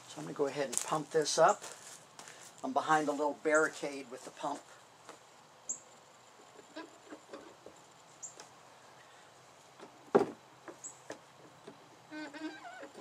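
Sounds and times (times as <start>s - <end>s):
high squeak: 12.1s - 13.0s.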